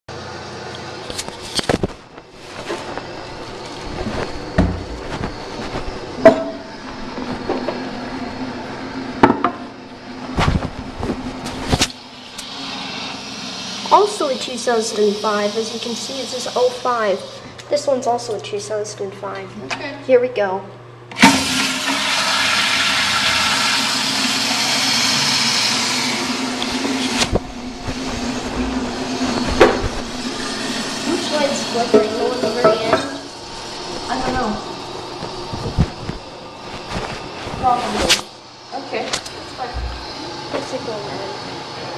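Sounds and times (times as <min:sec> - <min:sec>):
steady low hum: 0:00.1 - 0:21.2, 0:24.4 - 0:41.6
toilet flushing whoosh: 0:11.7 - 0:17.4, 0:21.2 - 0:35.0
steady hiss: 0:11.7 - 0:18.3.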